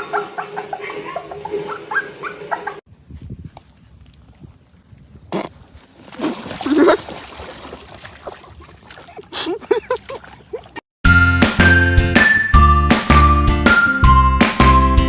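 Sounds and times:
puppy vocalizing: 0.0s - 2.8s
water splashing: 5.7s - 10.8s.

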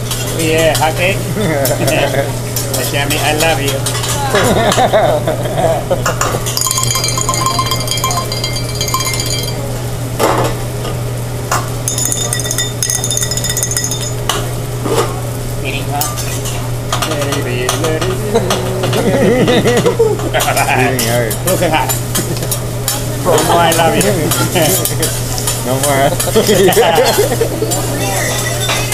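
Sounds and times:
rice sizzling on a griddle: 0.0s - 5.3s, 20.3s - 28.9s
high metallic ringing: 6.5s - 10.1s, 11.8s - 14.5s.

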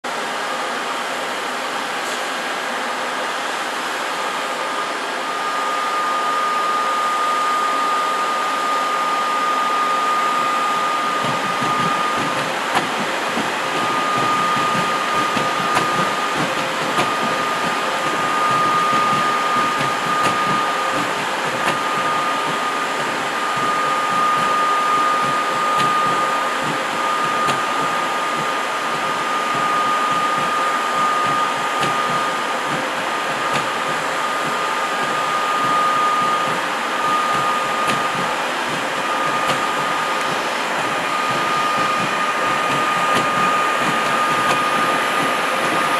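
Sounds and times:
thin high whine: 1.8s - 45.9s
wheels rumbling on rail: 10.5s - 45.9s.

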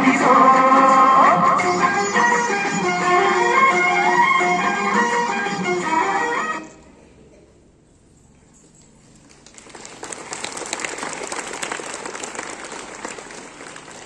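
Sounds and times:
audience applauding: 9.2s - 14.0s.

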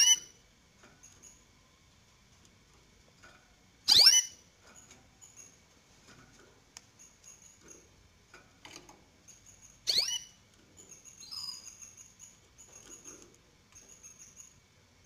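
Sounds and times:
bird chirp sweeping downward: 9.9s - 10.3s.

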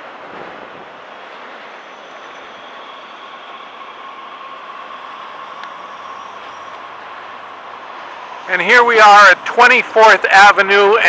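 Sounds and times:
high whine: 0.0s - 11.0s
passing vehicle rushing: 0.0s - 11.0s.

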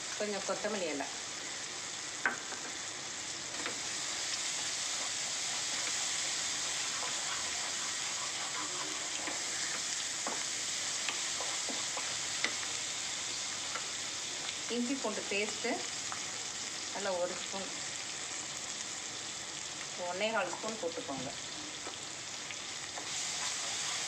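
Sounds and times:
vegetables sizzling in oil: 0.0s - 24.0s
spatula scraping pan: 3.7s - 12.7s, 23.0s - 24.0s.

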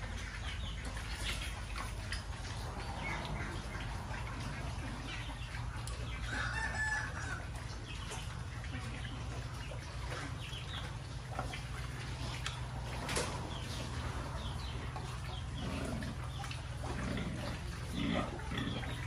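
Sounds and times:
pigs chewing and smacking: 0.0s - 19.0s
rooster crowing: 6.3s - 7.4s.

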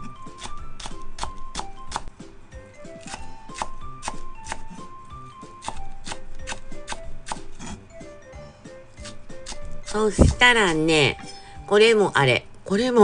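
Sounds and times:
knife chopping on wooden board: 0.0s - 2.1s, 3.0s - 7.8s, 9.0s - 10.4s
background music: 0.0s - 13.0s.

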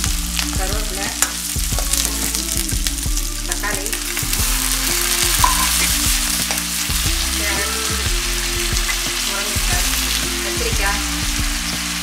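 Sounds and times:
vegetables sizzling in oil: 0.0s - 12.0s.

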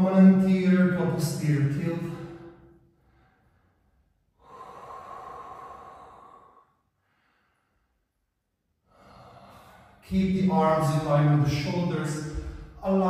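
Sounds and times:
man breathing out: 2.1s - 8.2s, 8.8s - 10.0s.

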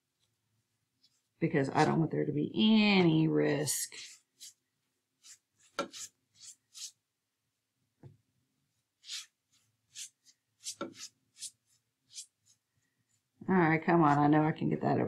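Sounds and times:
paintbrush swishing on wood: 9.0s - 12.6s.

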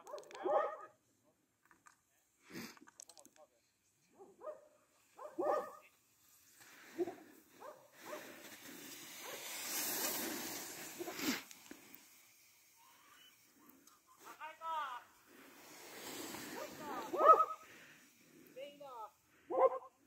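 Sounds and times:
dog barking: 0.0s - 1.0s, 4.2s - 5.9s, 7.0s - 8.2s, 16.6s - 17.6s, 19.5s - 20.0s
hiss: 5.9s - 14.4s, 15.0s - 19.3s.

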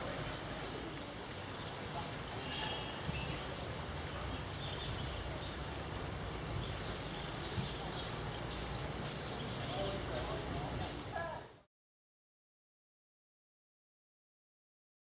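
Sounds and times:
faint background hiss: 0.0s - 11.7s.

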